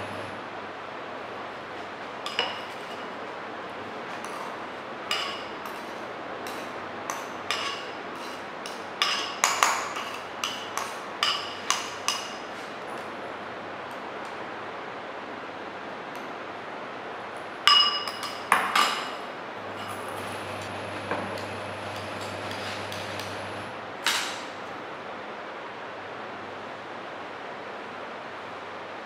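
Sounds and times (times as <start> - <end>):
metal spatula clinking on bowl: 5.1 - 12.4, 17.7 - 19.2.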